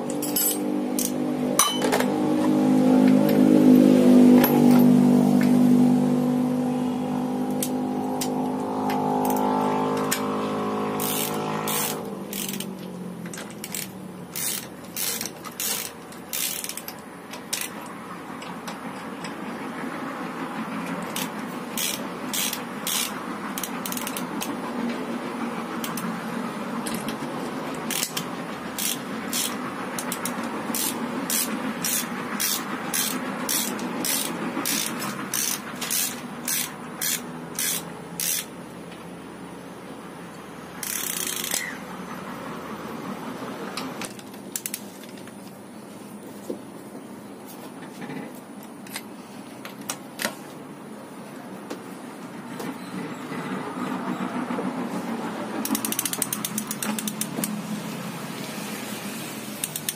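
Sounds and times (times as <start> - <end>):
ratchet wrench clicking: 0.0 - 1.8, 7.6 - 10.3, 10.9 - 18.8, 20.8 - 24.6, 25.8 - 26.1, 27.8 - 38.6, 40.8 - 41.8, 44.0 - 45.3, 55.6 - 57.6, 59.6 - 59.9
engine steady pitch: 0.0 - 59.9.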